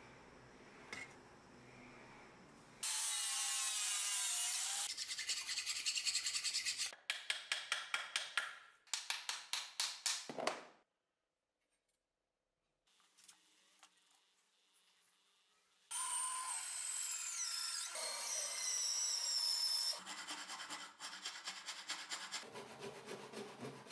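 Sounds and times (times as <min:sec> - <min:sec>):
file scraping wood: 0:19.9 - 0:23.9.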